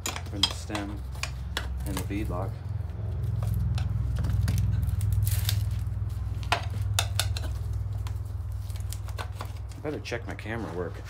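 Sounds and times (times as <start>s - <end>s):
metal tools clinking on wheel rim: 0.0s - 8.2s
steady low hum: 0.0s - 11.0s.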